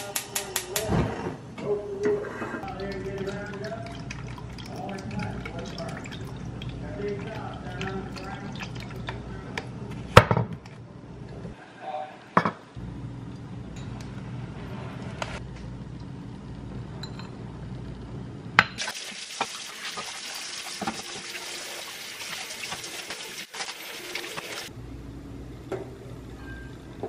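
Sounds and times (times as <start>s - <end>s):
low steady hum: 1.2s - 11.6s
tap water running into sink: 18.8s - 24.7s.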